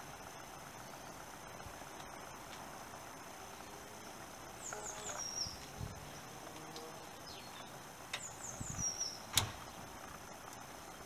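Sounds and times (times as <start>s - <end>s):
bird singing: 0.0s - 2.4s, 3.4s - 11.0s.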